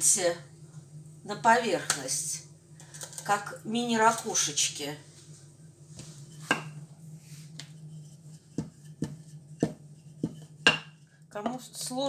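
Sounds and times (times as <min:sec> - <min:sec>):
steady low hum: 0:00.0 - 0:12.0
rolling pin rolling dough: 0:07.6 - 0:11.6.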